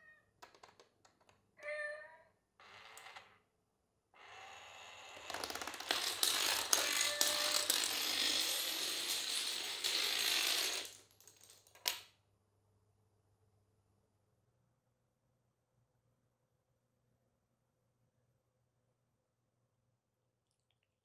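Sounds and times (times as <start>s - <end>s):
dominoes toppling clatter: 5.2s - 12.0s.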